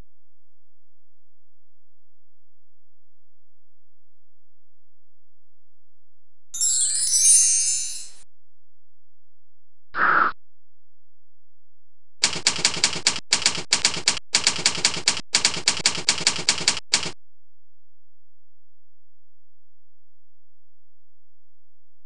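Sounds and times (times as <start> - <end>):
typewriter keystrokes: 12.2 - 17.2.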